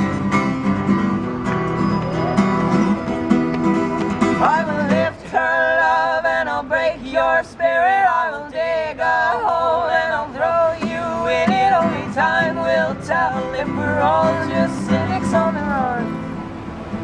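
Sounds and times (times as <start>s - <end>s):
male voices singing in harmony: 4.3s - 16.3s.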